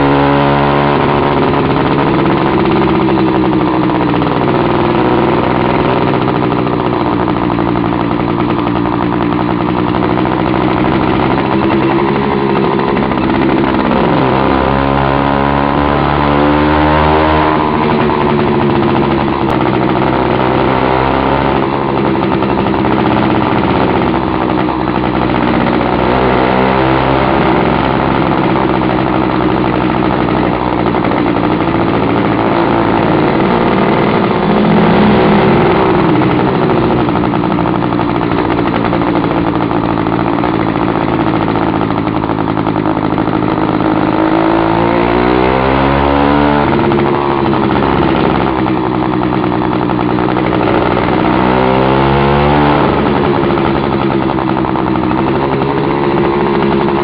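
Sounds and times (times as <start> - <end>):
two-stroke bicycle engine running: 0.0 - 57.0.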